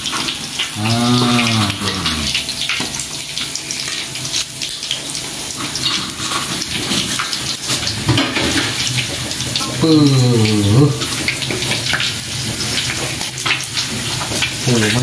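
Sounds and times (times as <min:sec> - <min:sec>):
fish deep-frying in oil: 0:00.0 - 0:15.0.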